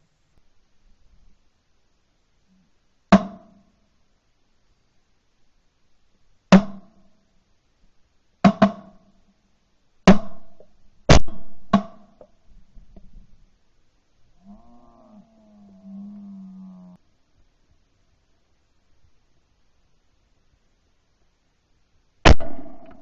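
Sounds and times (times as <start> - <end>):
shotgun shots: 22.3 - 23.0.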